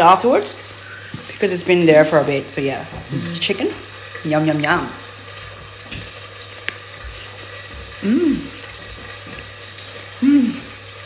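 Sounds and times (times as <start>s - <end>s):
chicken frying in hot oil: 0.0s - 11.0s
person humming while eating: 3.0s - 3.6s, 7.9s - 8.7s, 10.1s - 10.8s.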